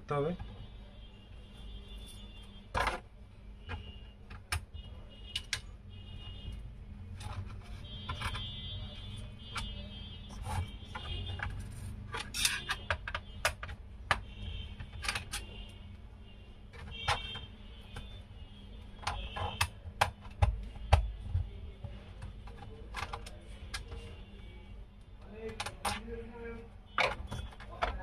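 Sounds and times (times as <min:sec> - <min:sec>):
metal tool clicking on plastic: 0:19.0 - 0:21.3.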